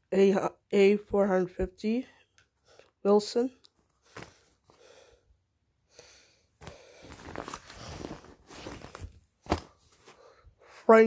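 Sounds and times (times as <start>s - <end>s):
fabric backpack rustling: 3.8s - 4.8s, 6.6s - 10.4s.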